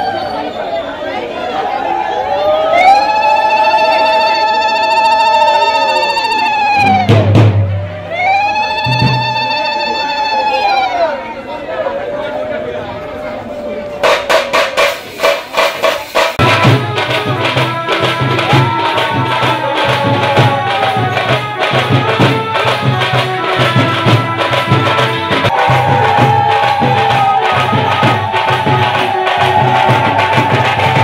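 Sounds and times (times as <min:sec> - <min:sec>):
drumming: 0:06.7 - 0:10.0, 0:14.0 - 0:31.0
bells and cymbals clanging: 0:13.3 - 0:31.0.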